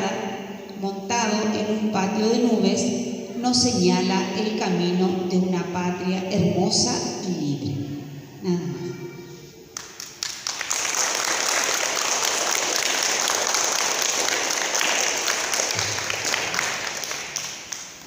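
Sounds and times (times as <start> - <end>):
children applauding: 9.8 - 18.0.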